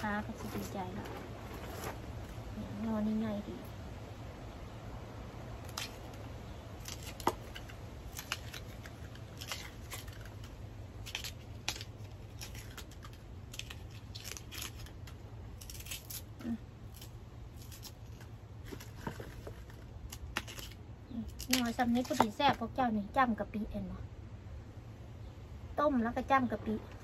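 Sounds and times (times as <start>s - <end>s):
knife cutting bamboo shoot: 5.6s - 22.6s.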